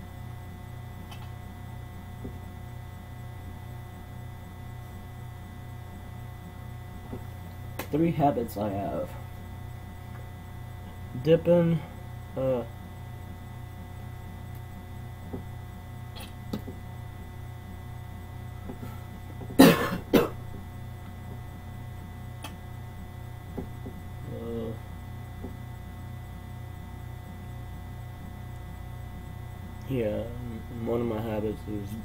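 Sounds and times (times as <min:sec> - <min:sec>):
electrical mains hum: 0:00.0 - 0:32.0
man coughing: 0:19.6 - 0:20.4.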